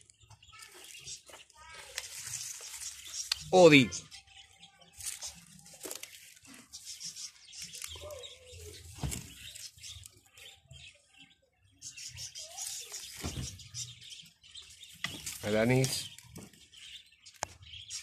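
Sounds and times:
leaves and stems rustling: 0.6s - 10.5s, 12.3s - 14.0s, 14.7s - 16.6s.

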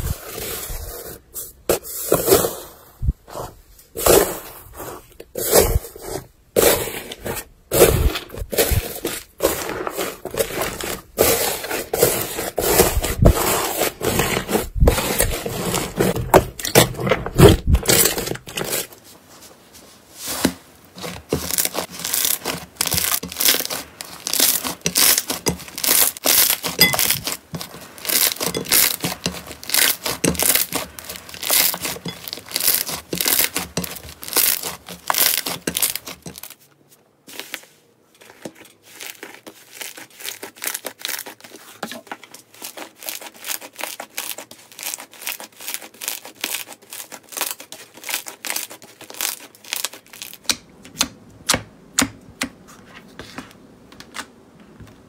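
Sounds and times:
slime crackling and popping: 21.3s - 36.5s, 42.5s - 50.6s.

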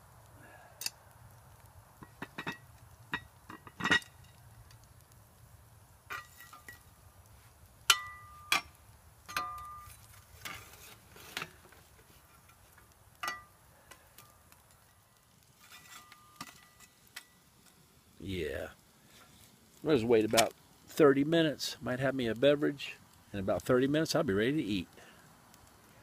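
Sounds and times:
iron pot lid clanking on grate: 2.0s - 4.3s, 6.1s - 6.8s, 7.9s - 8.7s, 9.3s - 10.6s, 13.2s - 13.5s.

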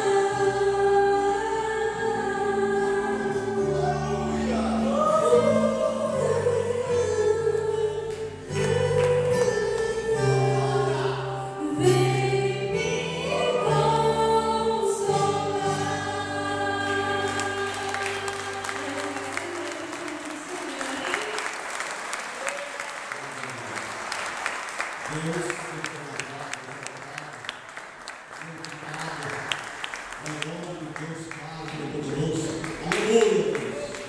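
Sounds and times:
bass chords: 0.0s - 19.0s
group of voices singing: 0.0s - 20.6s
people clapping: 8.1s - 10.0s, 16.7s - 34.0s.

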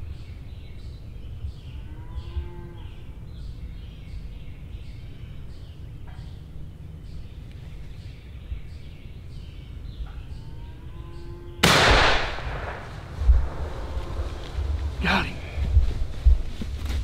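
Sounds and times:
songbirds singing: 0.0s - 17.0s
low rumble: 11.6s - 17.0s
low drawn-out tone: 12.4s - 15.6s.

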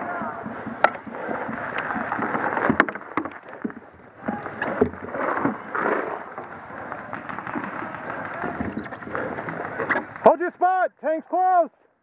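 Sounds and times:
paintball shots popping: 6.9s - 10.3s.

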